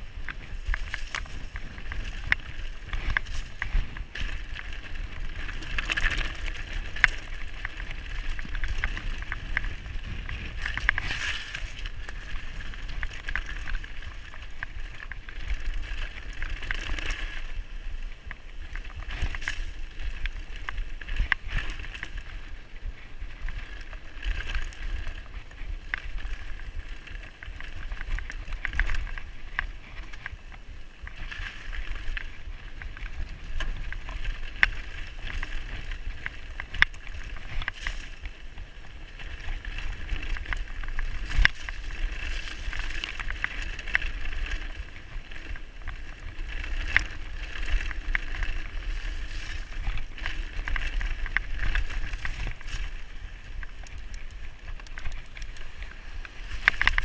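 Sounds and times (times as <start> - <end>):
steady low rumble: 0.0 - 16.4
bike rattling: 0.0 - 57.0
bike tyre noise on dirt: 0.0 - 57.0.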